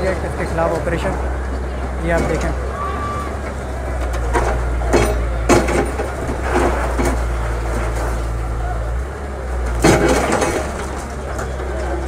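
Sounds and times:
excavator diesel engine droning: 0.0 - 12.0
brick and concrete breaking and falling: 9.7 - 11.7.

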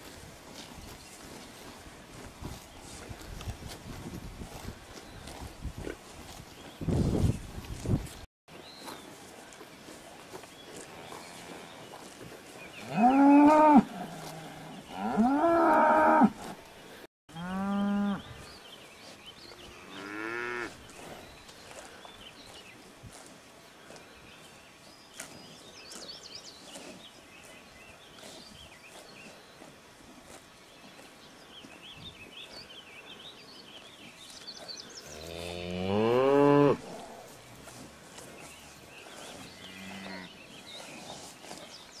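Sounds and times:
birds chirping faintly: 10.4 - 42.0
cattle mooing: 39.6 - 40.3.

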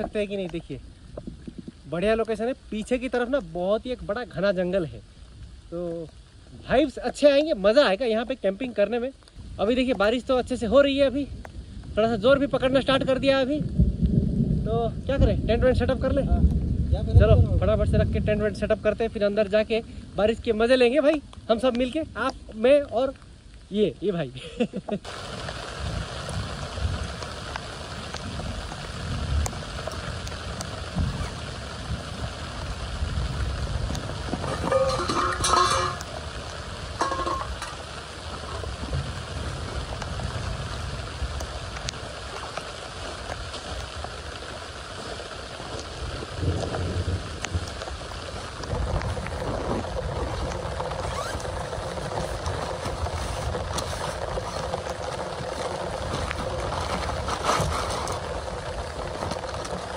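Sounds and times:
rain hissing: 0.0 - 59.9
low rumbling on microphone: 10.3 - 20.2, 25.0 - 59.9.

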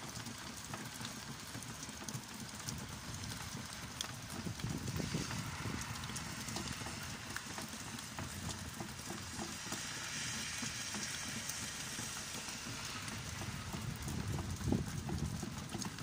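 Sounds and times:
steady rain falling: 0.0 - 16.0
low rumble: 4.3 - 15.8.

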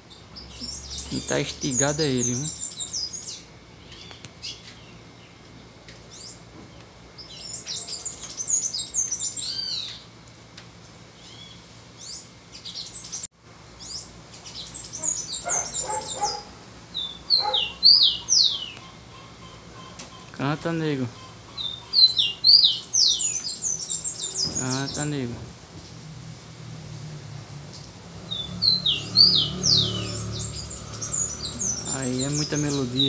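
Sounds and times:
lower bird notes: 28.1 - 33.0.

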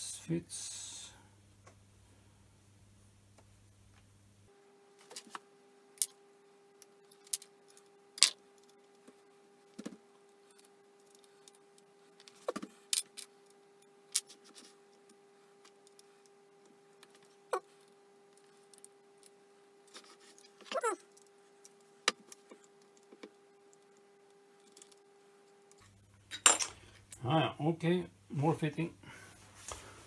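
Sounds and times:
faint steady hum: 0.0 - 30.0
metal parts and tools clinking: 26.3 - 26.8.

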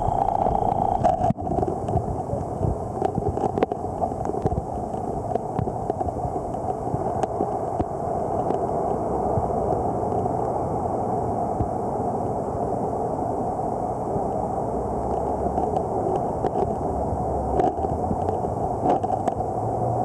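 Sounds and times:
sharp underwater clicks: 0.0 - 10.5, 15.0 - 16.9, 17.5 - 19.6
underwater churning water: 0.0 - 20.0.

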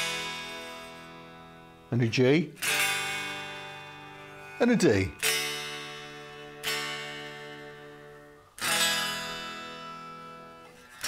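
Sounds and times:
unplugged electric guitar strummed: 0.0 - 1.9, 2.6 - 11.0.

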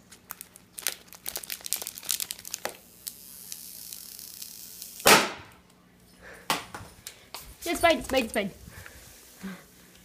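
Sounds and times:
foil pouch crinkling: 0.0 - 4.5.

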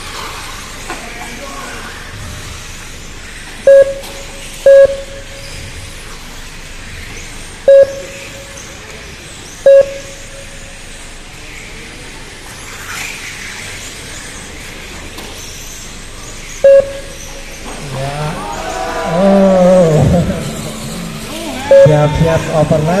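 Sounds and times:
short electronic beeps: 3.7 - 5.7, 7.7 - 8.8, 9.6 - 10.9, 16.6 - 17.6, 20.1 - 23.0.

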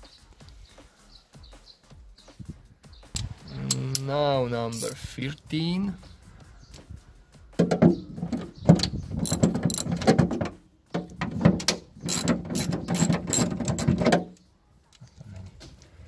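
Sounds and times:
hand ratchet clicking: 8.8 - 10.2, 11.0 - 14.4.

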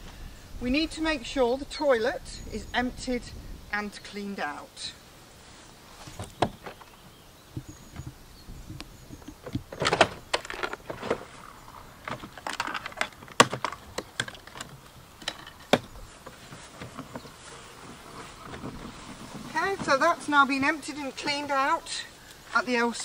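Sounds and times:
plastic clicks and knocks: 12.0 - 15.9.

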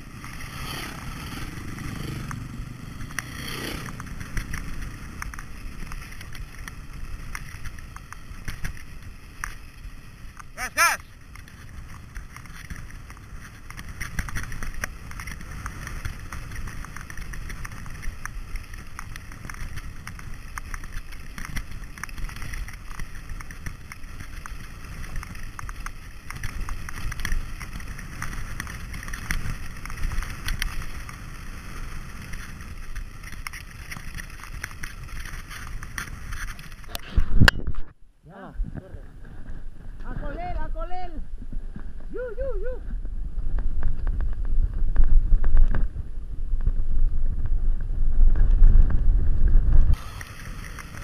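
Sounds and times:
tyres rumbling over gravel: 0.0 - 37.0, 49.9 - 51.0
bike rattling and clicking: 0.0 - 38.0, 39.0 - 51.0
wind noise on microphone: 33.8 - 51.0.

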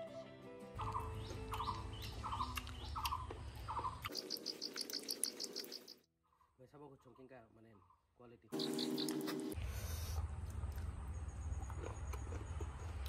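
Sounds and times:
bird chirping: 0.8 - 9.6.

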